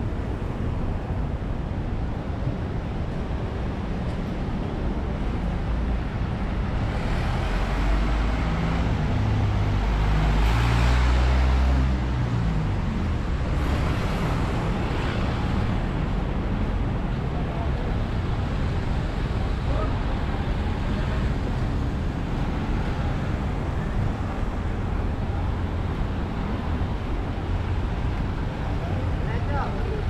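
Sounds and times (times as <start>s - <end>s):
vehicle passing: 6.9s - 12.6s.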